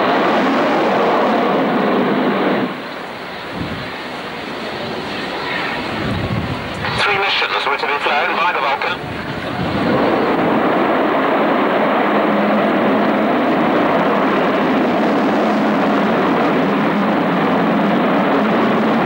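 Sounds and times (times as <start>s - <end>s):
jet aircraft passing overhead: 0.0s - 19.0s.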